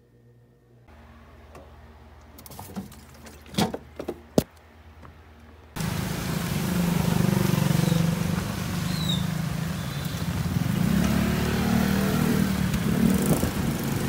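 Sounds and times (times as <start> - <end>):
road noise hiss: 0.9 - 14.0
small motorcycle engine running: 5.8 - 14.0.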